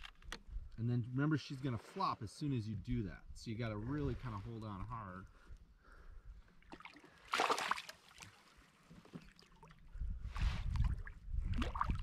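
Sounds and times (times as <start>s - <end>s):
water sloshing against hull: 6.3s - 12.0s
fish splashing at surface: 6.7s - 8.2s.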